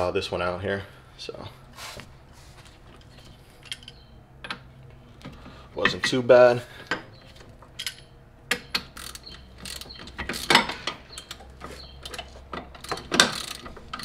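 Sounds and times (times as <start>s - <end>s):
hand ratchet clicking: 7.8s - 11.4s, 12.0s - 14.0s.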